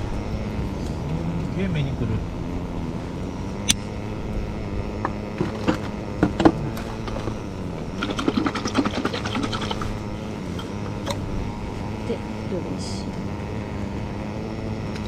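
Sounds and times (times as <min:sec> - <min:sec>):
steady low hum: 0:00.0 - 0:15.0
bottle being shaken: 0:08.0 - 0:09.8.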